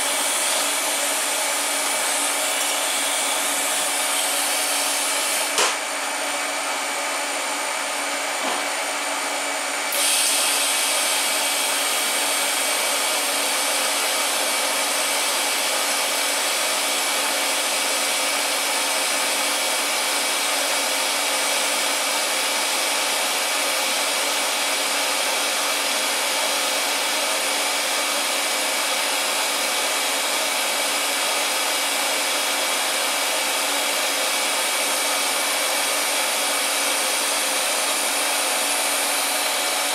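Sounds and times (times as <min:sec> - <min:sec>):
welding arc hiss: 0:00.0 - 0:05.8, 0:09.9 - 0:14.4
blower noise: 0:00.0 - 0:18.4, 0:32.4 - 0:39.9.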